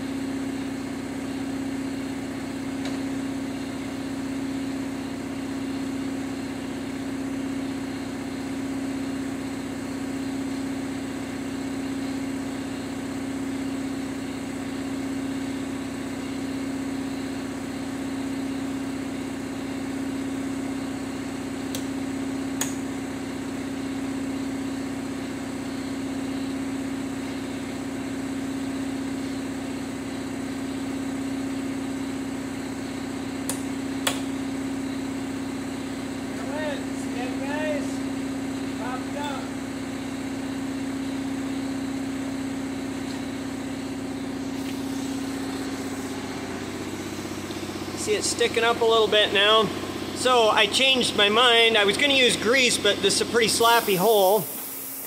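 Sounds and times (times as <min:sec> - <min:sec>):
machine hum: 0:32.9 - 0:55.0.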